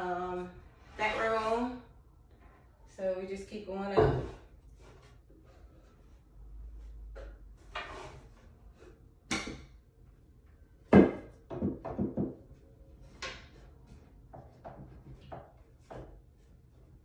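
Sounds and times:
wooden shelf boards knocking: 10.9 - 12.4.

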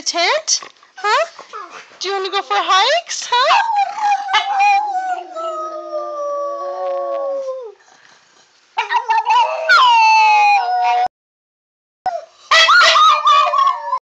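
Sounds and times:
dog howling: 3.5 - 7.8, 8.8 - 11.1, 12.1 - 14.0.

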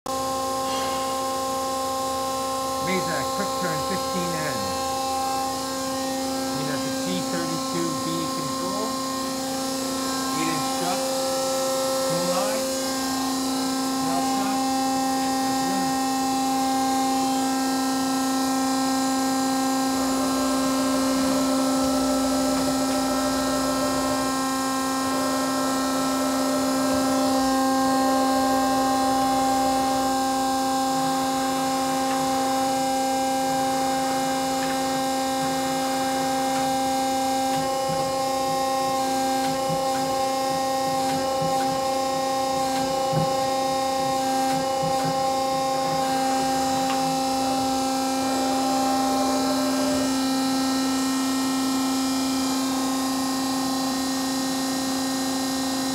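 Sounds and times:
lathe mechanical hum: 0.1 - 55.9.

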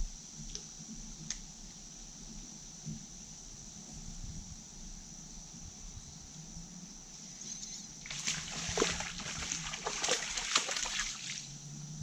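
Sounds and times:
fish splashing at surface: 8.1 - 11.5.

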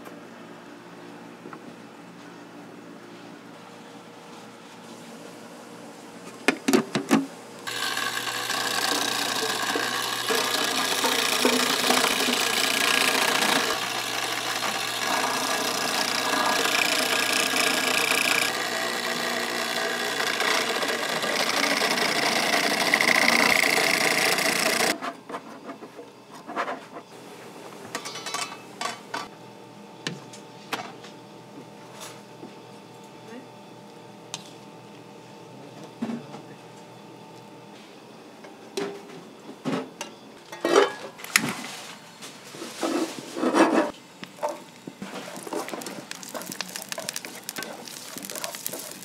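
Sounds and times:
machine motor rasping: 7.6 - 25.0, 44.4 - 49.0.

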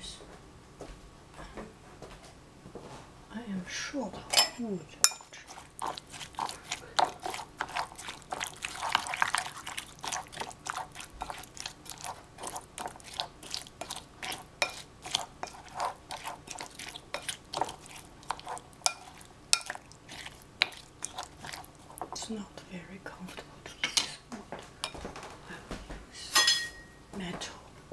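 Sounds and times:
spoon stirring yogurt in a bowl: 4.3 - 24.2.

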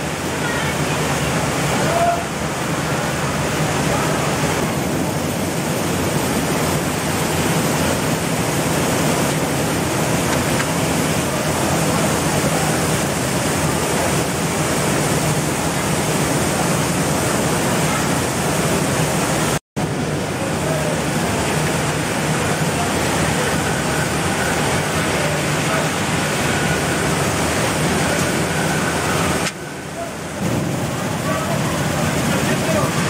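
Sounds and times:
milling machinery running: 0.0 - 33.0.

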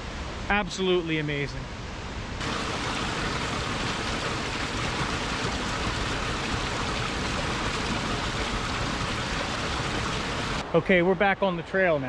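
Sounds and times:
creek water rushing over rocks: 2.4 - 10.6.

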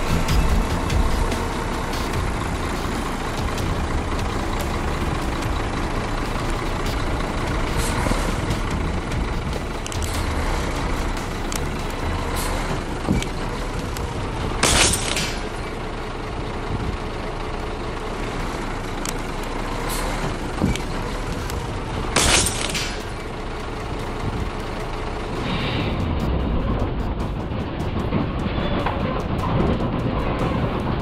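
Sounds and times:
truck engine running: 0.0 - 31.0
air brakes hissing: 7.6 - 8.5, 12.3 - 12.8, 25.4 - 26.2.

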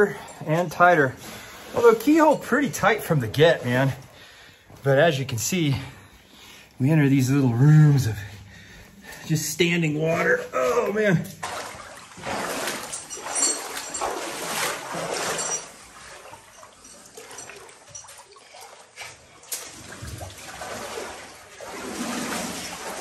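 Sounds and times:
footsteps splashing through water: 11.2 - 23.0.

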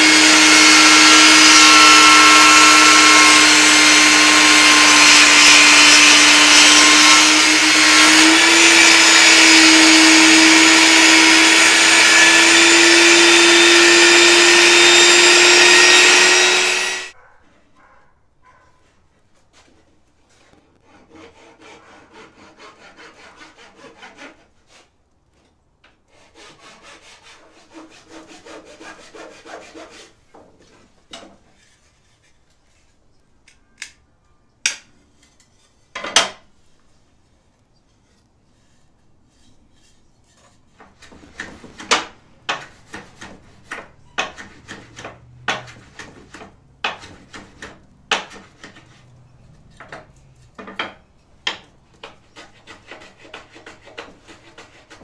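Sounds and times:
wood scraping abrasive surface: 0.0 - 17.2, 26.1 - 33.1, 36.6 - 55.0.

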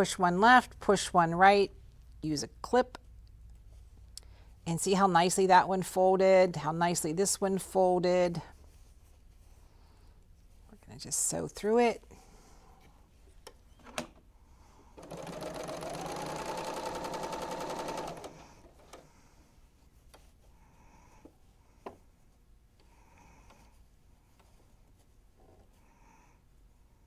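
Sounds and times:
serger stitching: 15.0 - 19.0.

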